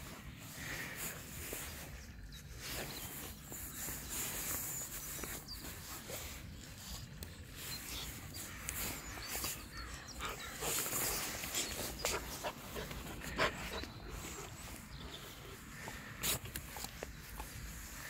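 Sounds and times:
puppies panting: 0:09.0 - 0:17.8.

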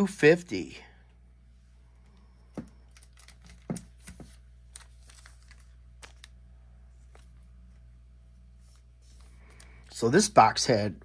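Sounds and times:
faint steady hum: 0:00.0 - 0:11.0
cards tapping and rustling: 0:02.5 - 0:06.3.

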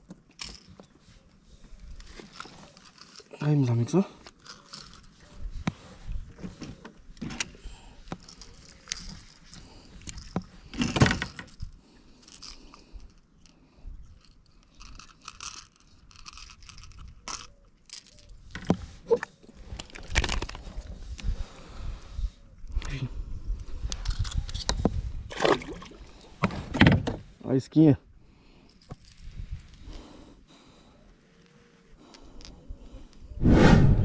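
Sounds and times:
fishing gear clicking and rattling: 0:00.0 - 0:05.7, 0:06.3 - 0:21.3, 0:23.6 - 0:27.2, 0:28.6 - 0:30.3.

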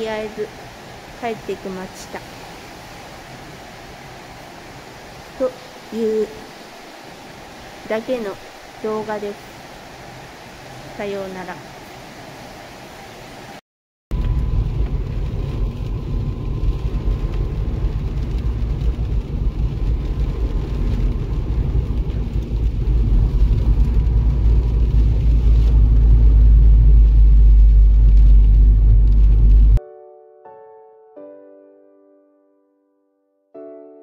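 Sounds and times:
car engine and tyre rumble: 0:14.2 - 0:29.8.

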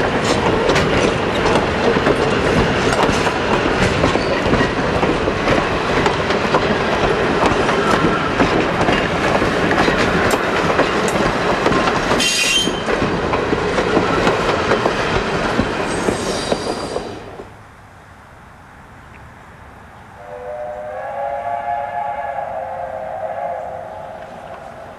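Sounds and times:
wheels clicking over rail joints: 0:00.0 - 0:17.6
train coaches rolling past: 0:00.0 - 0:24.9
high wheel squeals: 0:12.2 - 0:12.9.

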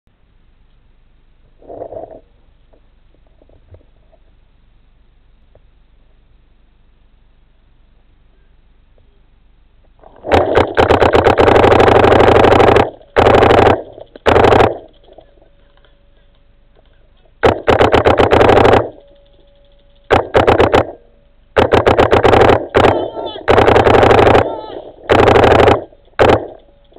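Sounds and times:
paintball marker firing bursts: 0:10.2 - 0:15.4, 0:17.4 - 0:26.9.

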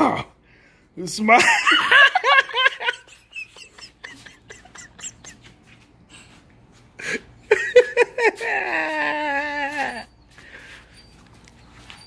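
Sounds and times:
child giggling: 0:01.5 - 0:06.3, 0:07.0 - 0:10.1.

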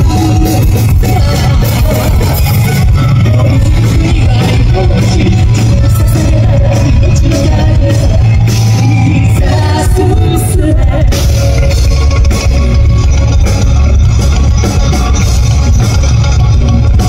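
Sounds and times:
woman singing lead vocal: 0:00.0 - 0:12.0
loud distorted live rock band: 0:00.0 - 0:17.0.

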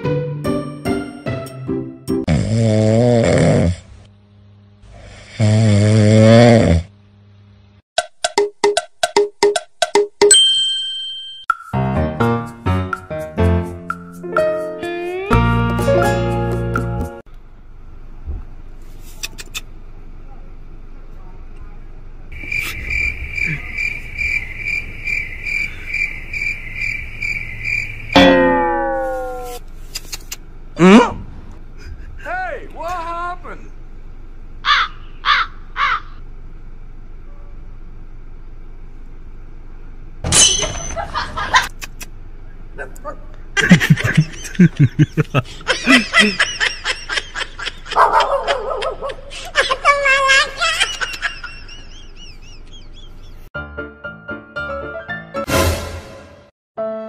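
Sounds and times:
high insect-like chirping: 0:22.3 - 0:28.3
downward sliding tones: 0:28.2 - 0:29.6
laughter in short bursts: 0:43.6 - 0:53.1.

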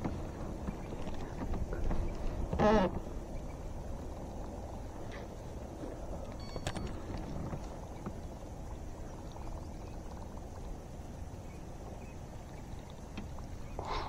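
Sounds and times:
water lapping against kayak hull: 0:00.0 - 0:14.0
faint small clicks: 0:06.2 - 0:08.2.

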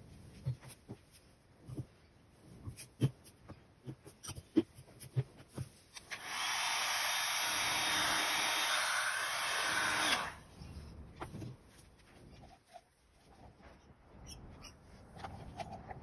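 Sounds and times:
heat gun blowing: 0:06.0 - 0:10.5.

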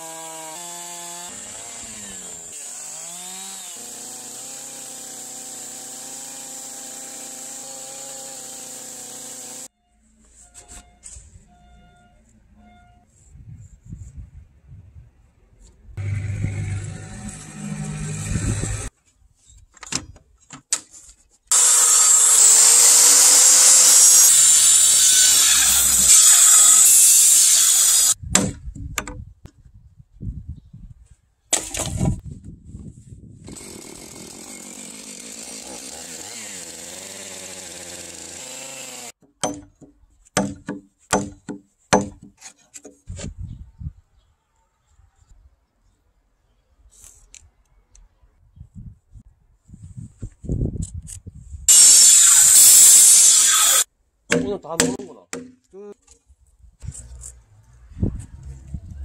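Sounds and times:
circular saw cutting timber: 0:00.0 - 0:09.7, 0:16.0 - 0:18.9, 0:21.5 - 0:28.2, 0:33.4 - 0:39.2, 0:51.7 - 0:53.9
low hum: 0:16.0 - 0:18.9
hammer striking chisel into wood: 0:39.2 - 0:42.3, 0:54.3 - 0:55.6.

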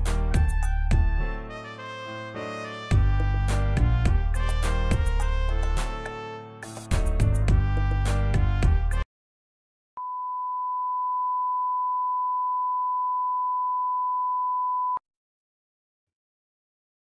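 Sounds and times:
background music: 0:00.0 - 0:09.0.

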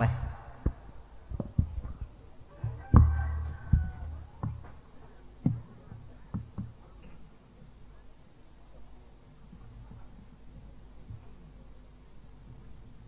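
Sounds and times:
knocks and bumps: 0:00.0 - 0:04.8.

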